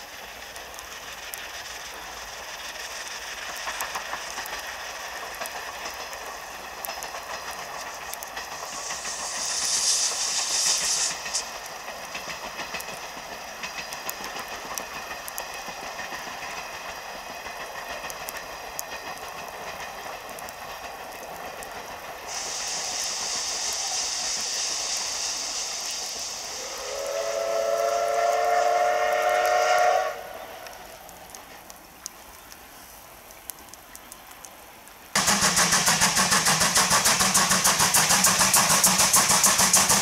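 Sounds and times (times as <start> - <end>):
loud high steam hiss: 0.0 - 33.2, 35.1 - 40.0
steam locomotive hissing: 0.0 - 33.2, 35.2 - 40.0
running gear clicks on rails: 0.0 - 40.0
steam whistle blast: 25.0 - 30.7.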